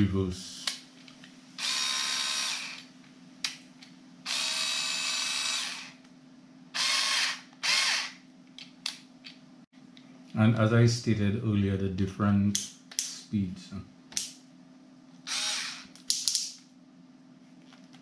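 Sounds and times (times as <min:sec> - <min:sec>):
cordless screwdriver motor whirring: 0:01.6 - 0:02.9, 0:04.3 - 0:06.0, 0:06.8 - 0:08.2, 0:15.3 - 0:15.9.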